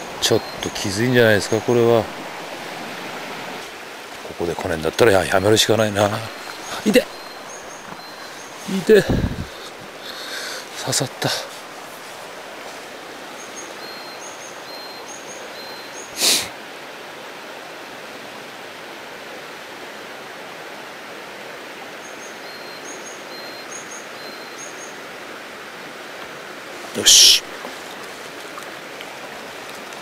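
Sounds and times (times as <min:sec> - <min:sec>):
stream rushing: 0:00.0 - 0:30.0
small bird singing: 0:05.6 - 0:09.7, 0:13.4 - 0:16.2, 0:22.0 - 0:25.0.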